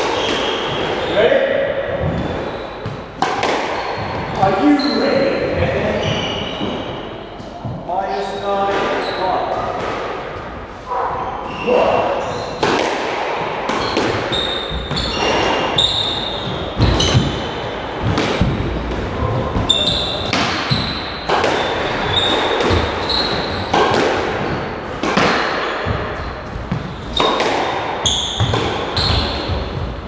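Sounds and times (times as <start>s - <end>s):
squash ball hits echoing: 0.0s - 5.0s, 8.6s - 30.0s
shoes squeaking on wooden floor: 2.0s - 3.2s, 3.8s - 9.5s, 10.9s - 12.6s, 13.8s - 18.1s, 19.2s - 23.8s, 28.0s - 30.0s.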